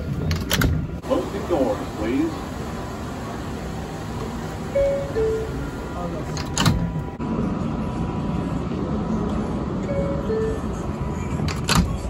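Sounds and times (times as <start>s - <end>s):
two-note door chime: 4.7s - 5.7s
subway doors banging shut: 4.7s - 7.1s, 11.4s - 12.0s.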